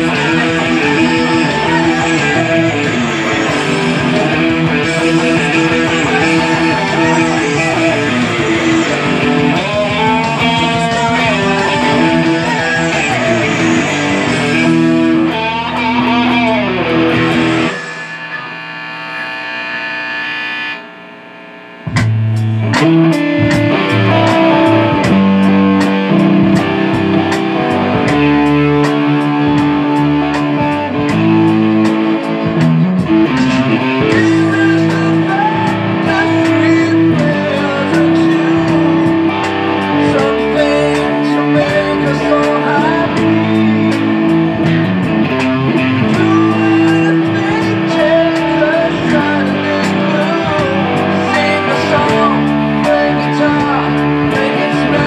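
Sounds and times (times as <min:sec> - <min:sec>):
ticking beat: 0:00.0 - 0:17.8, 0:21.8 - 0:55.0
backing instruments: 0:00.0 - 0:18.9
loud electric guitar lead: 0:00.0 - 0:55.0.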